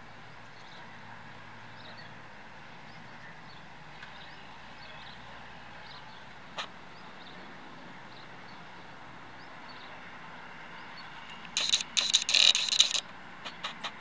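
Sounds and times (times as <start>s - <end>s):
distant tractor: 0.5s - 14.0s.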